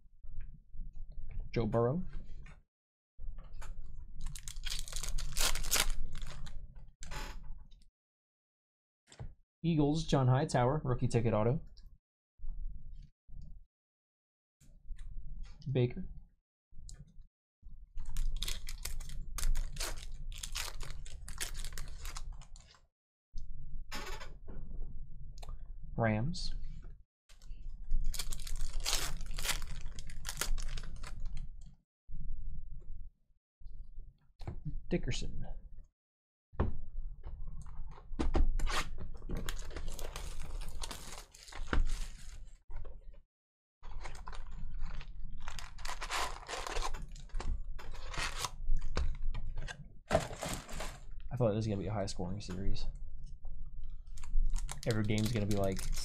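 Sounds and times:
foil wrapper tearing and crinkling: 4.2 - 6.5, 18.0 - 22.8, 28.0 - 31.4, 39.4 - 42.4, 43.9 - 48.9, 54.2 - 56.0.

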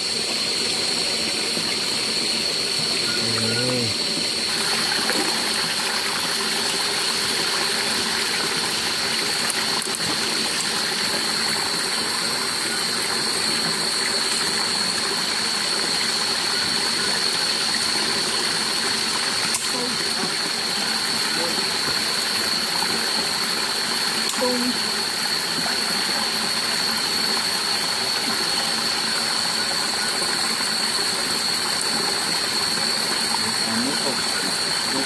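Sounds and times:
continuous high-pitched tone: 2.7 - 4.4, 19.4 - 23.4, 24.2 - 26.7, 32.0 - 35.0
stream rushing over rocks: 4.0 - 35.0.

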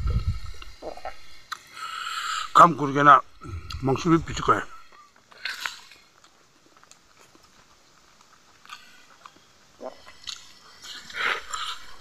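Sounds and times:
crunching and wet mouth noises: 3.4 - 4.0, 4.9 - 6.1, 8.6 - 12.0
person chewing food: 5.4 - 7.4, 8.2 - 12.0.

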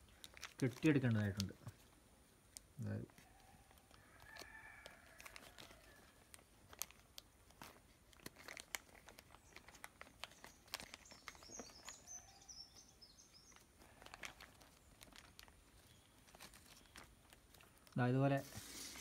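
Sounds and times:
plastic bag crinkling: 0.0 - 19.0
faint bird chirps: 9.4 - 14.1.

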